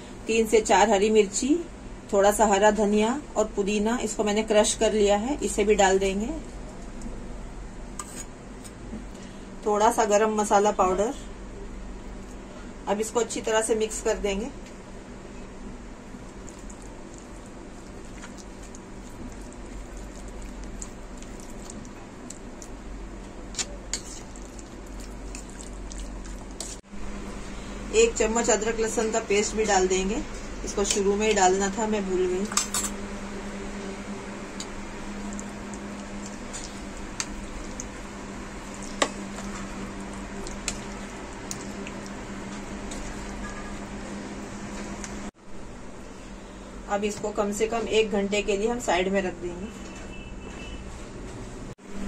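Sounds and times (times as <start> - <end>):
low steady hum: 0.0 - 50.0
wet squelching and stirring: 16.0 - 31.7, 33.9 - 45.3.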